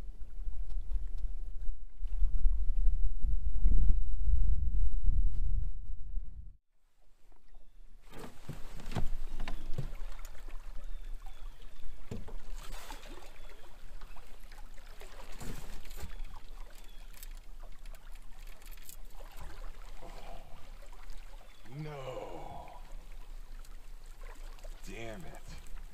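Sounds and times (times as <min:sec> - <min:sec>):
water lapping against boat hull: 0:07.1 - 0:25.9.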